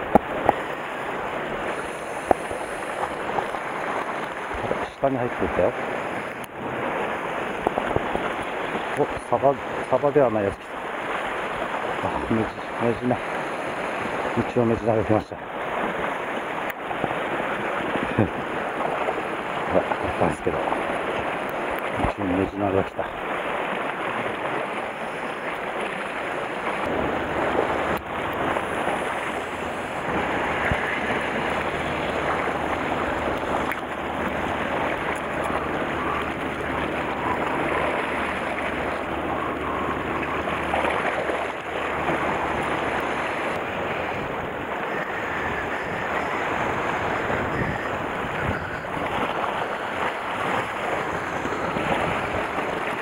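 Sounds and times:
waves splashing on rocky shore: 0:00.0 - 0:53.0
low steady hum: 0:24.5 - 0:53.0.

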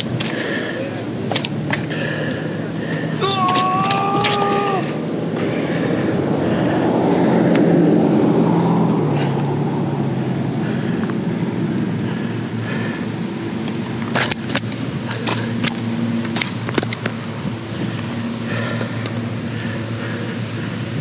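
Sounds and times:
vehicle driving past: 0:03.9 - 0:21.0.

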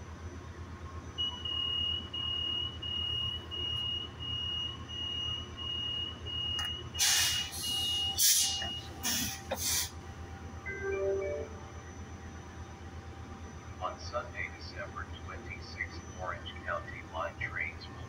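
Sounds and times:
low train hum: 0:00.0 - 0:04.9, 0:06.2 - 0:18.0
door warning beeps: 0:01.2 - 0:09.6.

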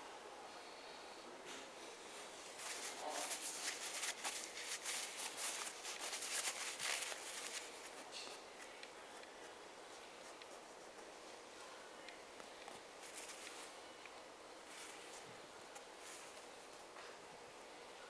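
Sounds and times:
paper towel rustling on leather: 0:02.5 - 0:08.1.

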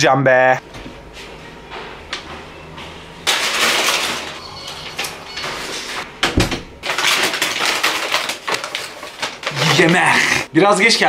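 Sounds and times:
paper bag rustling: 0:03.2 - 0:06.0, 0:06.8 - 0:10.5
door shutting with thud: 0:06.2 - 0:06.7.

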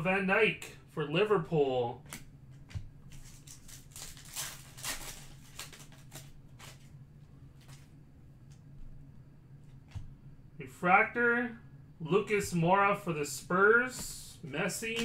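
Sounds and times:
low steady hum: 0:00.0 - 0:15.0
cards clicking and rustling: 0:02.1 - 0:06.9, 0:14.0 - 0:15.0.

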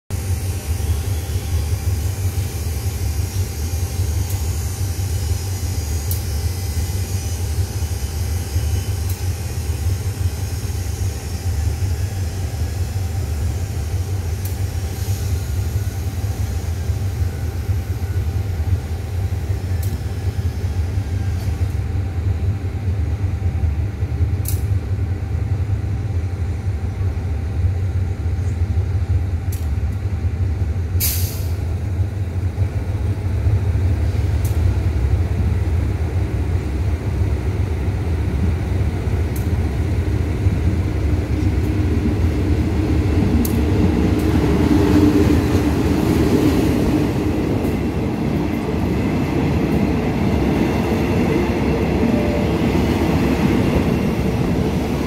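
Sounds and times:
diesel train engine idling: 0:00.1 - 0:55.0.

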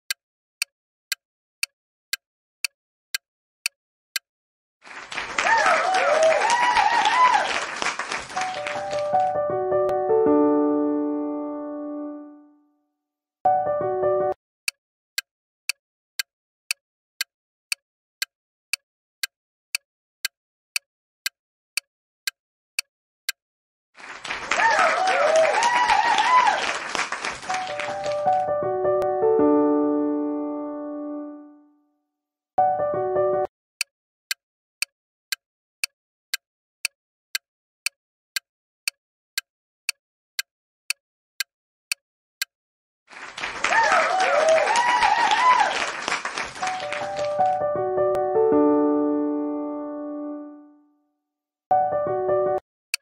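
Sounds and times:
clock ticking: 0:00.1 - 0:04.2, 0:14.7 - 0:23.4, 0:33.8 - 0:34.9, 0:35.8 - 0:42.5.

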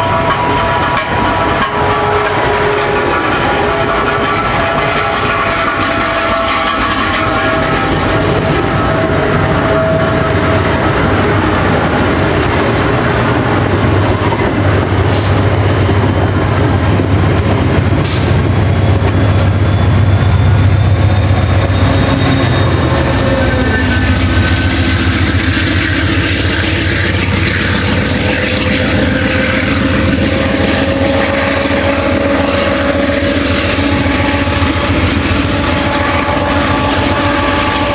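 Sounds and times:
diesel locomotive drone: 0:00.0 - 0:37.9
train wheels rumbling on rails: 0:00.0 - 0:37.9.

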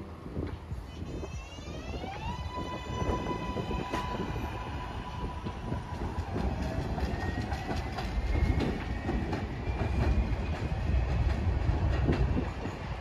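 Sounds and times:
train rumbling on elevated track: 0:00.0 - 0:13.0
train wheels clicking over rail joints: 0:05.4 - 0:13.0.

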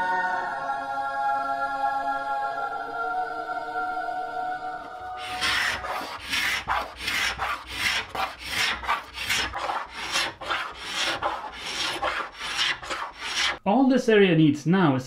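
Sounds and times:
scraper rasping on wood: 0:05.2 - 0:13.6.

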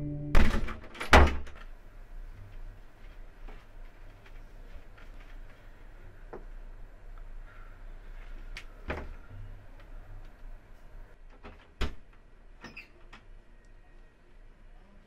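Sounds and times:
low steady hum: 0:00.0 - 0:00.9.

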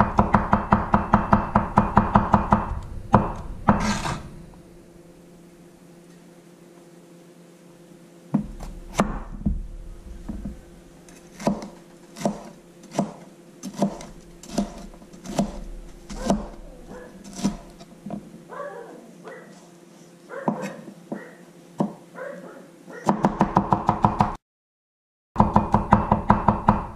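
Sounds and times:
knife chopping on wooden board: 0:08.4 - 0:09.6, 0:10.3 - 0:16.6, 0:17.2 - 0:18.2.

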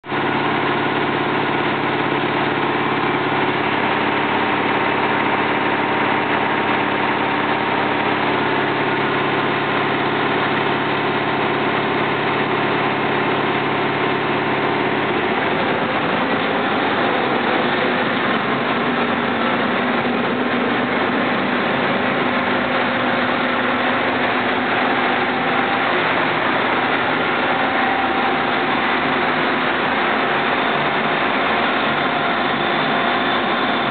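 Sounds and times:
milling machine cutting metal: 0:15.0 - 0:33.9.

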